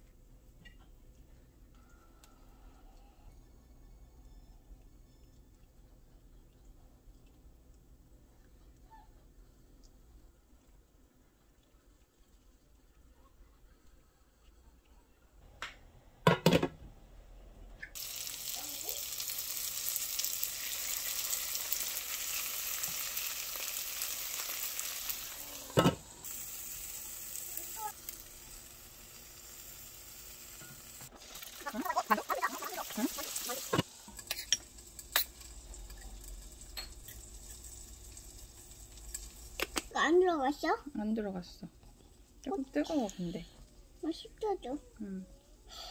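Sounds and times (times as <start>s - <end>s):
dumplings sizzling in oil: 17.9s - 41.4s.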